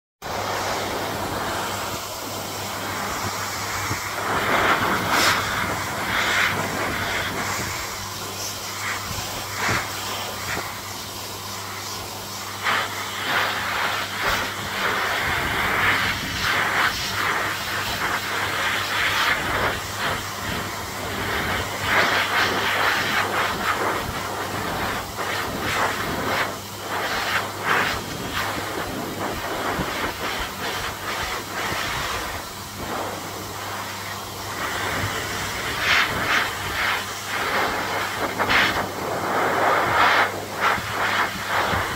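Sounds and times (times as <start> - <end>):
dog dryer blowing air: 0.2 - 41.9.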